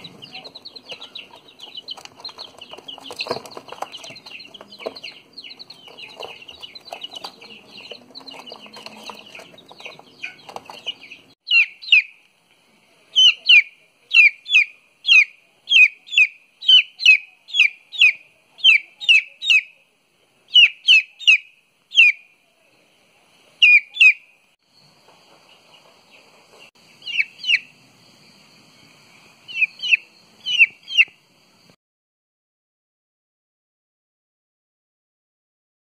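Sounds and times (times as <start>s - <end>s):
rustling: 0.0s - 11.4s
chick peeping loudly: 0.0s - 12.3s, 13.1s - 19.8s, 20.5s - 22.3s, 23.6s - 24.3s, 26.9s - 27.7s, 29.4s - 31.2s
chicks chirping: 0.0s - 12.3s, 13.1s - 19.8s, 20.5s - 22.3s, 23.6s - 27.9s, 28.8s - 31.7s.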